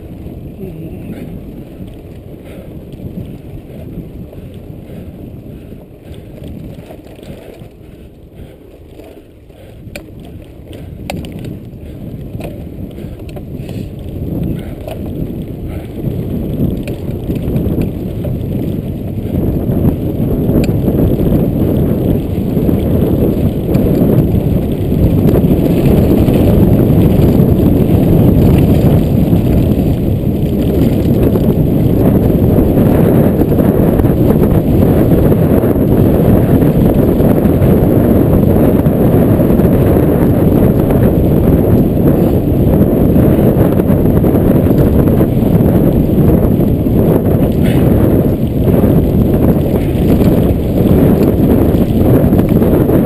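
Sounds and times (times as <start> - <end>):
bike clicks and rattles: 0.0 - 53.0
bike tyres crunching on dirt: 0.0 - 53.0
wind buffeting microphone: 0.0 - 53.0.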